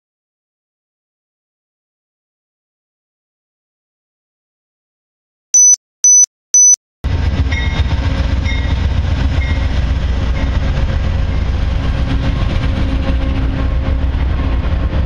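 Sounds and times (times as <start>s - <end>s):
faint high repeating tone: 5.6s - 6.8s
short high beeps: 5.6s - 6.8s
diesel locomotive engine rumble: 7.1s - 15.0s.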